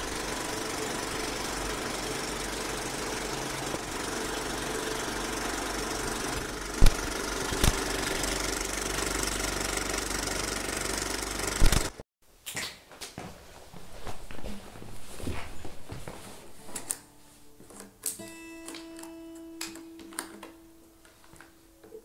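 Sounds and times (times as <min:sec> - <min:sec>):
film projector clattering: 0:00.0 - 0:12.0.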